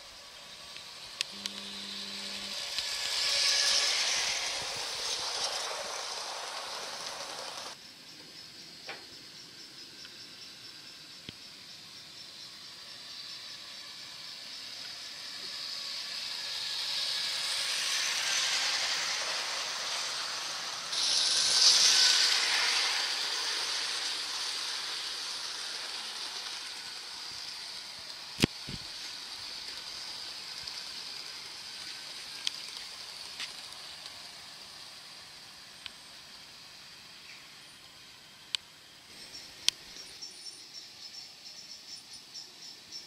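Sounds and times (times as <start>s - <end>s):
model train rolling on metal rails: 0.0s - 7.8s, 10.0s - 43.0s.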